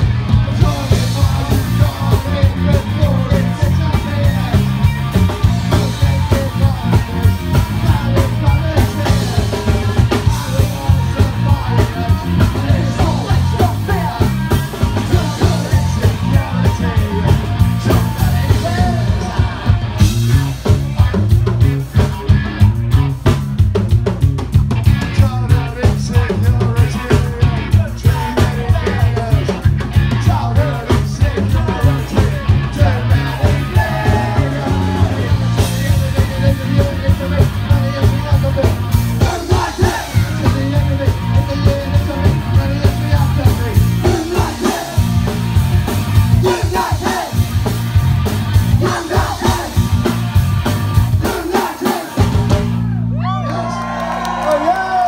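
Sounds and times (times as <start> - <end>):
bass guitar: 0.0 - 55.0
drum kit driving beat: 0.0 - 55.0
electric guitars: 0.0 - 55.0
person singing: 25.1 - 45.1.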